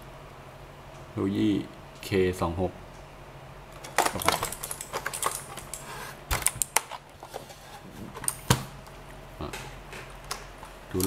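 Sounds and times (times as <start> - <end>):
keyboard plastic clicks and rattles: 3.8 - 7.1.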